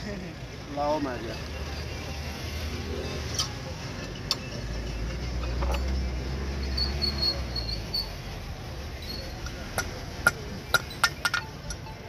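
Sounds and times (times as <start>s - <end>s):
metal tools clicking: 9.4s - 11.9s.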